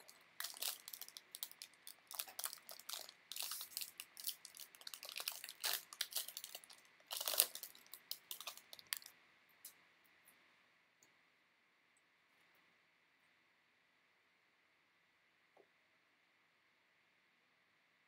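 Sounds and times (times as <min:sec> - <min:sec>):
wrapper tearing and crinkling: 0:00.0 - 0:09.1.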